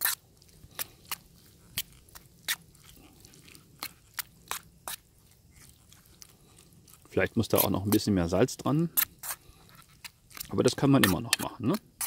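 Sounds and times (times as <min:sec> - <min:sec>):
metal spoon scraping a pan: 0:08.9 - 0:12.0.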